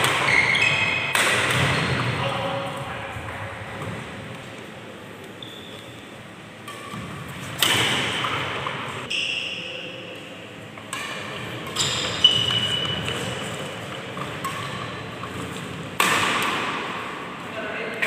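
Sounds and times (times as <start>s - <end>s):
rackets striking shuttlecock: 0.0s - 2.1s, 6.6s - 9.0s, 10.8s - 17.1s.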